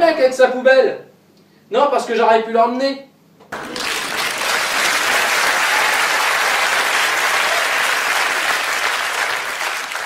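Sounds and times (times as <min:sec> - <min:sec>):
audience applause: 0:03.6 - 0:10.0.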